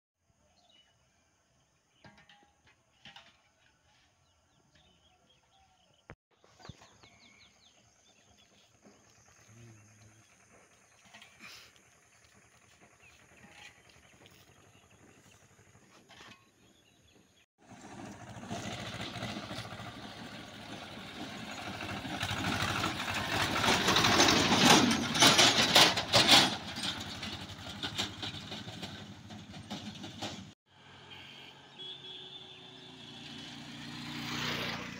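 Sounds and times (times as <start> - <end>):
diesel tractor driving past: 6.6 - 15.9, 16.9 - 34.9.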